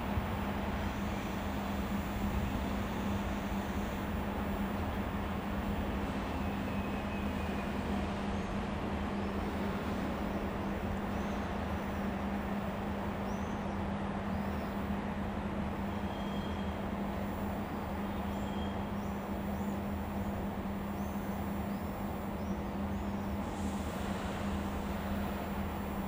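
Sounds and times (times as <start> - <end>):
train rumbling slowly: 0.0 - 26.0.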